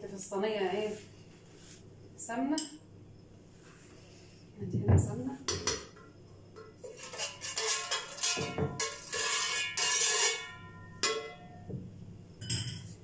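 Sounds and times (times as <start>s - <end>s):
metal spoon scraping baking tray: 6.8s - 11.5s.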